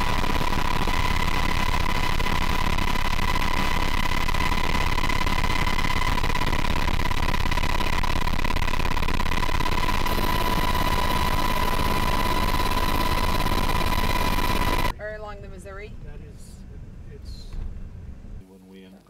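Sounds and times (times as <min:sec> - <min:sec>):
aircraft engine drone with whine: 0:00.0 - 0:14.9.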